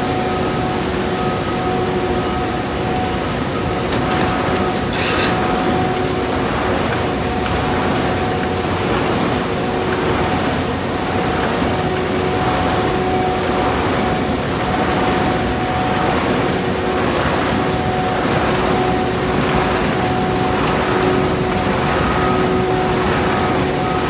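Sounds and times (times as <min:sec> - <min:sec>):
printing machine running: 0:00.0 - 0:24.0.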